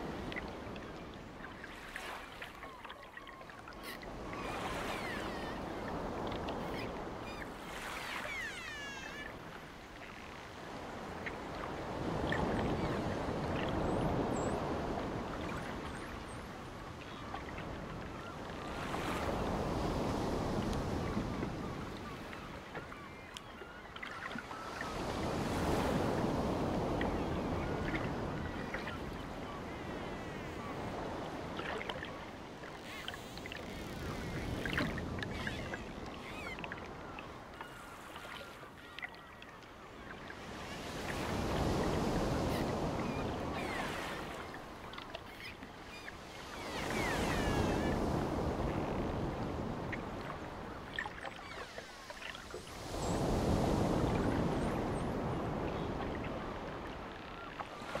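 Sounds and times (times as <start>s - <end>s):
sea surf breaking on beach: 0.0s - 0.5s, 40.4s - 45.0s, 45.9s - 58.0s.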